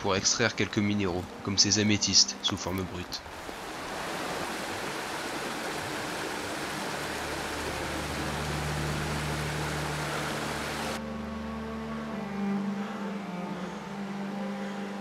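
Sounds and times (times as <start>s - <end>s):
stream rushing over rocks: 0.0s - 11.0s.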